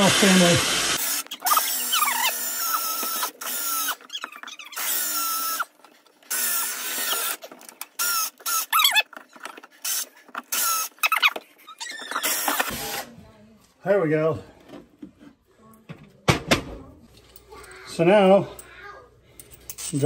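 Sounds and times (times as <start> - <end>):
cordless drill boring wood: 0.0 - 9.1, 9.8 - 13.1
drill bit squealing: 1.0 - 5.7, 9.9 - 12.7.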